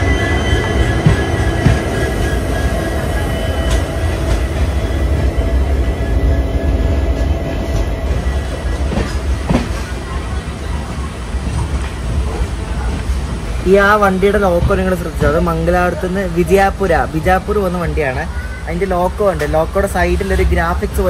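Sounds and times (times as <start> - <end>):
wheel squeal: 0.0 - 7.5
rail clacks: 0.0 - 21.0
train rumbling on rails: 0.0 - 21.0.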